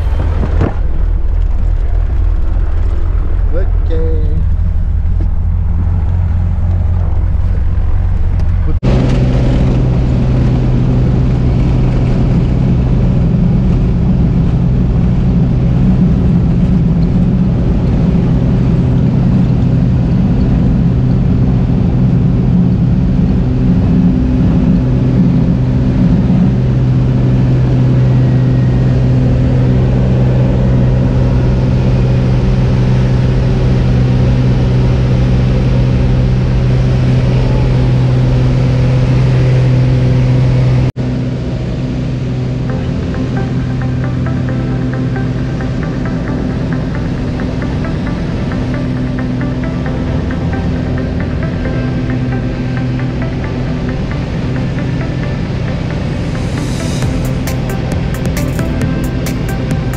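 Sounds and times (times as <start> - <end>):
wind noise: 0.0 - 40.9
small plane engine and propeller: 0.0 - 59.9.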